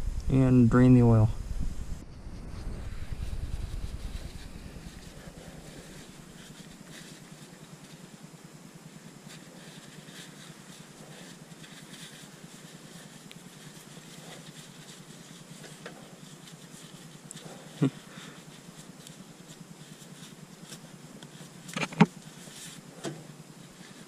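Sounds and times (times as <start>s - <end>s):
low rumble: 0.0s - 6.4s
low hiss: 0.0s - 24.0s
paper towel rustling and rubbing: 2.1s - 24.0s.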